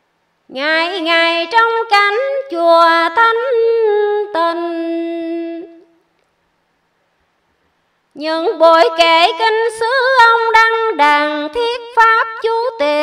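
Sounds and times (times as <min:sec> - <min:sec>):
woman singing: 0:00.5 - 0:06.0, 0:08.2 - 0:13.0.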